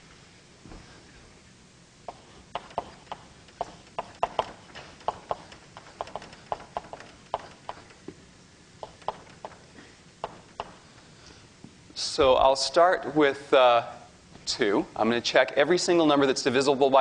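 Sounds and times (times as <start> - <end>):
irregular sharp clicks and taps: 2.1 - 8.2, 8.8 - 10.8.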